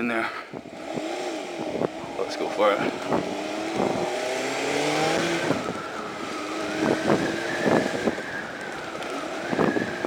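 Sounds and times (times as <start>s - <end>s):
motorcycle engine accelerating: 0.6s - 10.0s
wind thumping on microphone: 2.9s - 4.2s, 5.1s - 10.0s.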